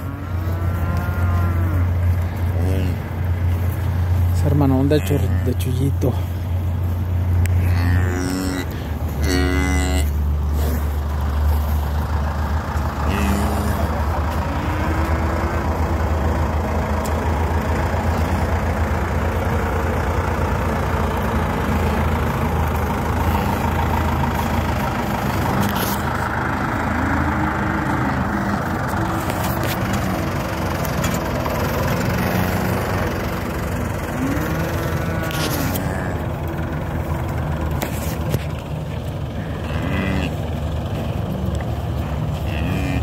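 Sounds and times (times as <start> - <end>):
cattle calling: 0.0 - 37.1, 37.7 - 43.0
steady low rumble: 0.0 - 43.0.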